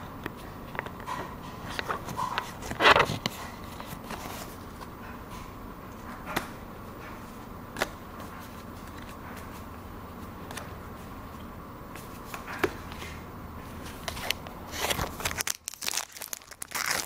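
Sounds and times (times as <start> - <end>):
trading cards rustling: 13.8 - 17.0.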